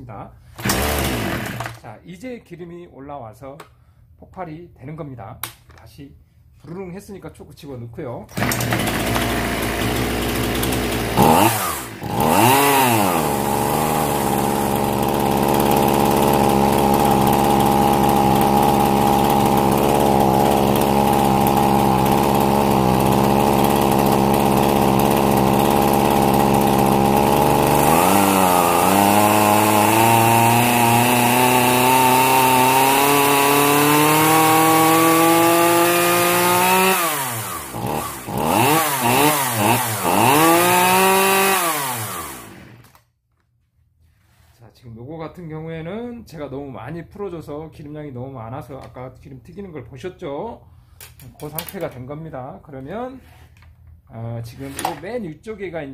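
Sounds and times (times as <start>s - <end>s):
chainsaw engine running: 0.6s - 1.8s, 8.3s - 43.0s.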